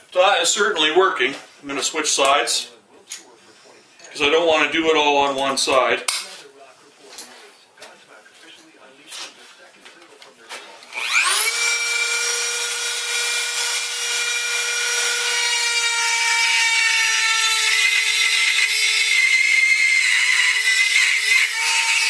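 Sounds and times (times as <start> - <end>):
rotary grinder whining: 10.9 - 22.0.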